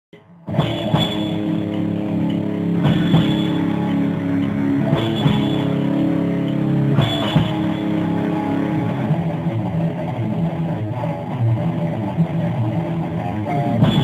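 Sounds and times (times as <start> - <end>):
drum kit: 0.1 - 14.0
electric guitars holding chords: 0.2 - 14.0
loud cymbal and drum hits: 0.5 - 9.2, 13.8 - 14.0.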